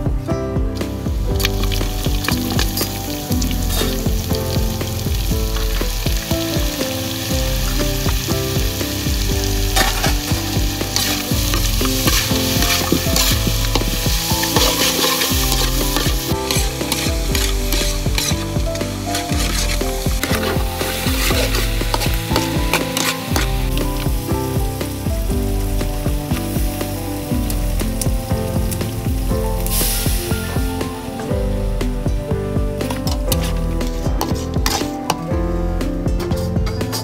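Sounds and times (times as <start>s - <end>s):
meat sizzling in hot oil: 1.2s - 31.2s
metal spatula scraping a wok: 9.6s - 24.1s, 32.9s - 35.2s.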